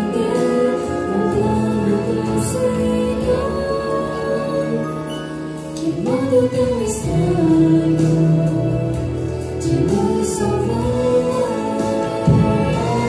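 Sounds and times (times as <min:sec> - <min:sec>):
instrumental accompaniment: 0:00.0 - 0:13.0
person singing through microphones: 0:00.0 - 0:13.0.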